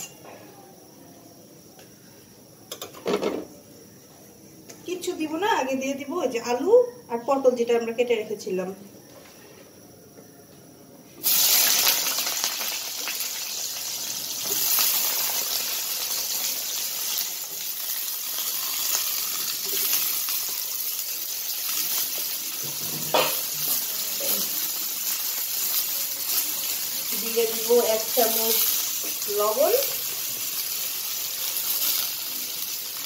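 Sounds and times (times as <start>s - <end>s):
food sizzling in hot oil: 11.2s - 33.0s.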